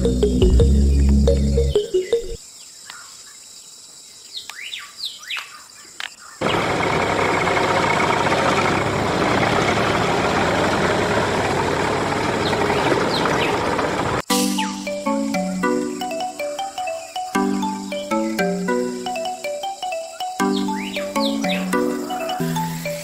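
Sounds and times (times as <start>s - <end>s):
birds chirping: 0.0s - 6.8s, 12.1s - 23.0s
loud tractor engine running: 6.4s - 14.2s.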